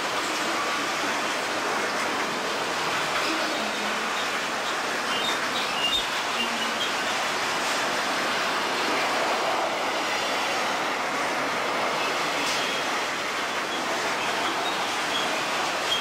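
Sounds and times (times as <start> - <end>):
train wheels rolling on rail: 0.0 - 16.0
faint wheel squeals: 13.6 - 16.0.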